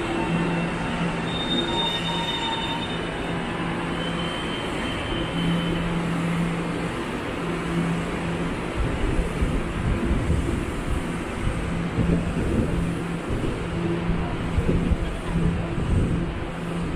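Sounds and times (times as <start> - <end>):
high wheel squeal: 0.0 - 6.4
train rumbling on rails: 0.0 - 16.9.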